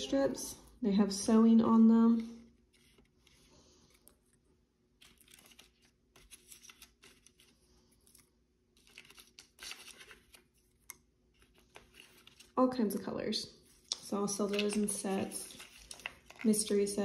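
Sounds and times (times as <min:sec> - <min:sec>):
cardstock rustling and scraping: 0:02.5 - 0:04.4, 0:05.0 - 0:13.0, 0:13.6 - 0:17.0.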